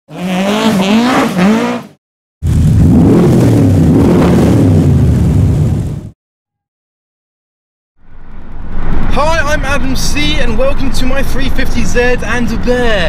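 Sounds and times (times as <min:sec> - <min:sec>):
car engine revving: 0:00.1 - 0:06.1
deep engine rumble: 0:02.4 - 0:06.2.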